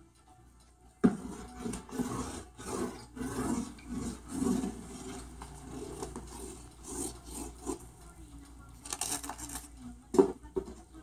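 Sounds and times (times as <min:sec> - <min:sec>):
bird scratching and chewing: 0:01.3 - 0:08.0.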